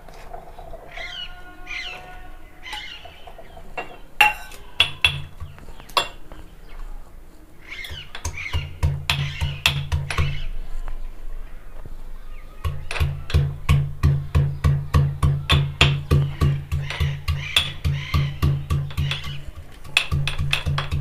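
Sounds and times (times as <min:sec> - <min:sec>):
metal pestle pounding in mortar: 0:12.7 - 0:21.0.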